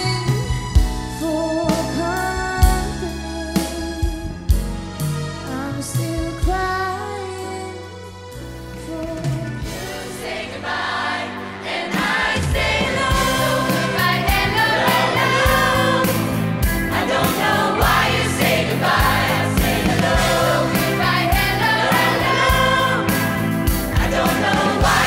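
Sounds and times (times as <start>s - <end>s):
woman singing: 0.0s - 0.5s, 5.5s - 7.9s
choir singing: 9.6s - 25.0s
steady drum beat: 11.8s - 25.0s.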